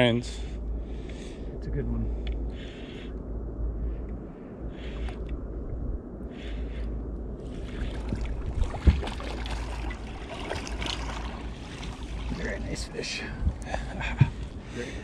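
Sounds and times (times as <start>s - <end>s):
wind rumbling on microphone: 0.0s - 15.0s
water splashing against boat: 7.5s - 14.6s.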